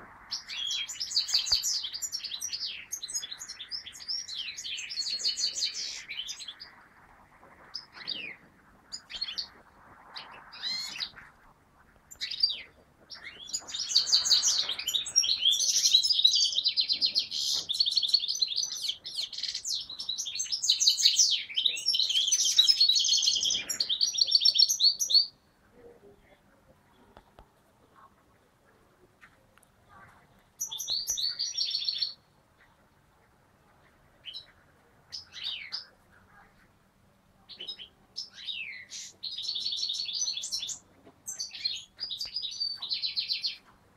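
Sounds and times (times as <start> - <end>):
finch twittering song: 0.2 - 11.2, 12.1 - 25.5, 30.6 - 32.8, 37.5 - 43.7
finch calling: 12.1 - 25.3.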